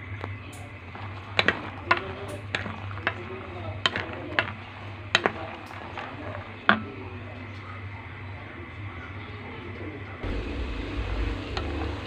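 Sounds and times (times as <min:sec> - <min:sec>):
oil sizzling: 0:00.0 - 0:08.8, 0:10.2 - 0:12.0
wooden spatula knocking metal pot: 0:00.6 - 0:07.3.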